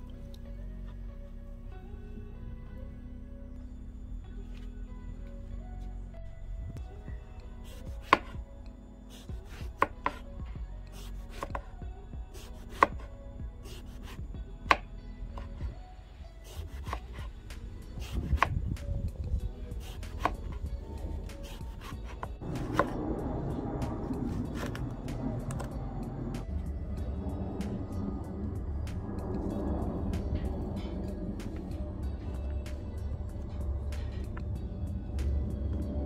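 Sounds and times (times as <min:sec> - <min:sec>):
knife slicing eggplant: 0:07.6 - 0:08.4, 0:09.1 - 0:10.2, 0:10.9 - 0:11.7, 0:12.3 - 0:15.6, 0:16.5 - 0:18.6, 0:19.8 - 0:23.0, 0:24.3 - 0:24.9
steady rushing noise: 0:22.4 - 0:36.0.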